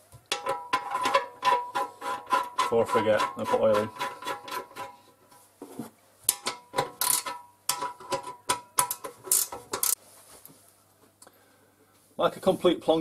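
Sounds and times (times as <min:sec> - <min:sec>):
ratchet wrench clicking: 0:07.0 - 0:07.3, 0:08.9 - 0:10.0.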